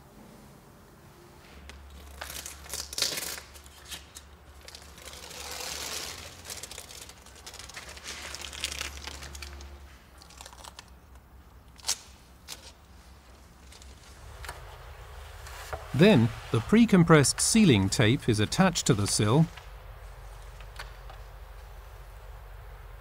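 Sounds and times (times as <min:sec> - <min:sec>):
masking tape being peeled off: 0:01.7 - 0:14.7.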